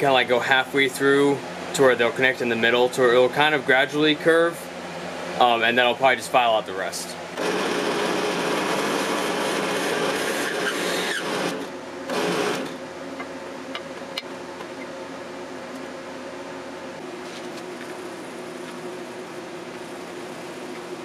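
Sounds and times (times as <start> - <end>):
motor humming: 7.3 - 15.0
drill press boring antler: 7.4 - 12.8.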